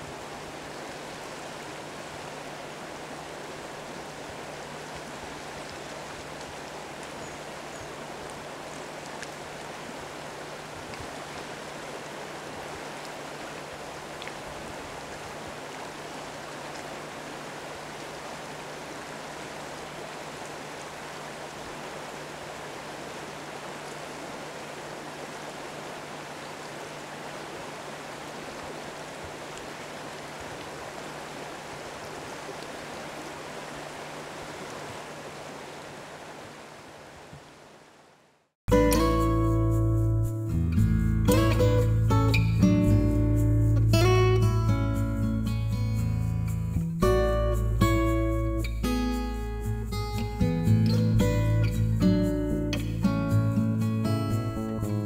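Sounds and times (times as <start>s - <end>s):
river water rushing: 0.0s - 39.5s.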